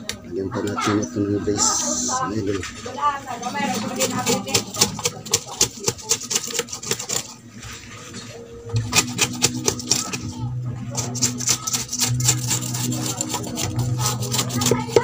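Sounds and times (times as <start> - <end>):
clicks and scrapes on wooden frame: 4.0 - 7.4, 8.8 - 10.2.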